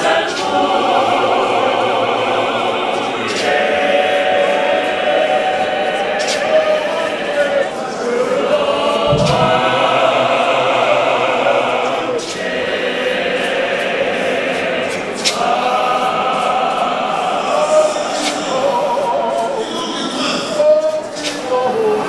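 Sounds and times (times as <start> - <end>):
congregation singing a hymn: 0.0 - 22.0
sharp knocks: 9.1 - 11.0.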